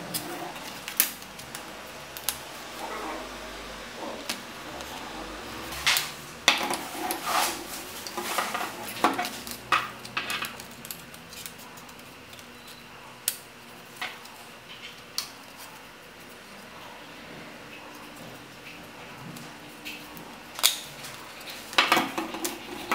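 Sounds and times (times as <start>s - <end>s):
wooden pieces clacking and scraping: 5.7s - 12.7s.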